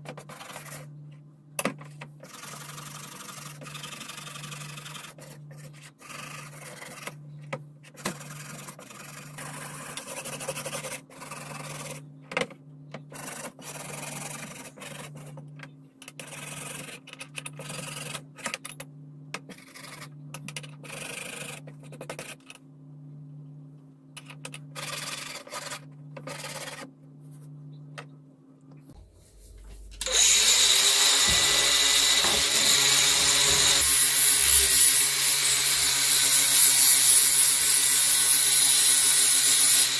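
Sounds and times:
angle grinder running: 0:30.0 - 0:39.9.

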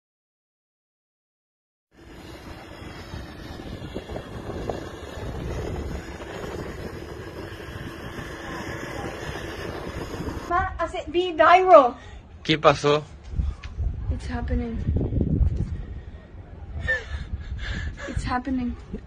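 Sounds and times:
wind on microphone: 0:02.0 - 0:11.3, 0:13.1 - 0:19.0.

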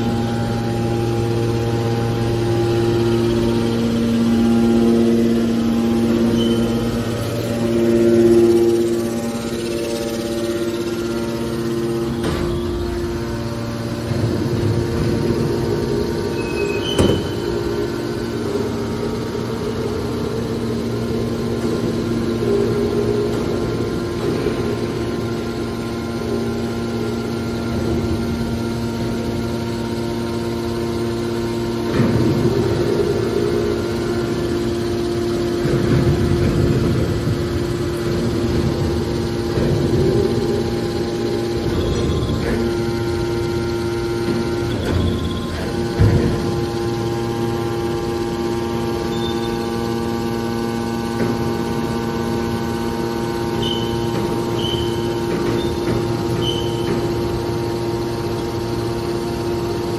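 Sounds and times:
hydraulic baler humming: 0:00.0 - 0:59.9.

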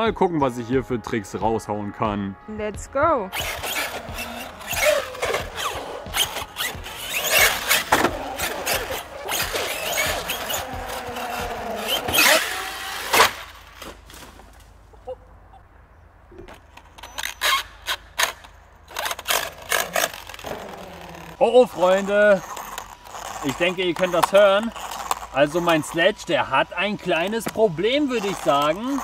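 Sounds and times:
gear clicks and rattles: 0:03.3 - 0:13.9, 0:16.3 - 0:29.0
toy truck motor whining: 0:03.3 - 0:13.9, 0:16.5 - 0:29.0
tyre noise on concrete: 0:03.3 - 0:14.9, 0:16.3 - 0:29.0.

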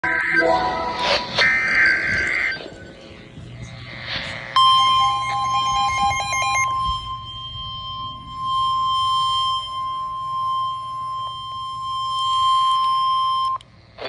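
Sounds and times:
steady high alert tone: 0:00.0 - 0:03.2, 0:04.6 - 0:10.9
stepped electronic beeping: 0:00.0 - 0:13.6.

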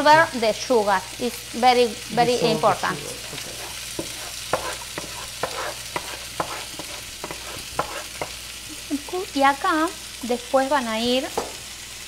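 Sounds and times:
chicken sizzling in oil: 0:00.0 - 0:12.0
wooden spoon scraping and knocking pan: 0:03.2 - 0:08.4, 0:11.3 - 0:11.6.

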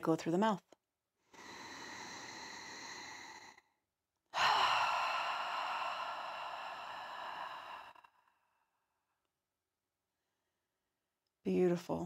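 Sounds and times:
woman sighing: 0:04.4 - 0:08.3.

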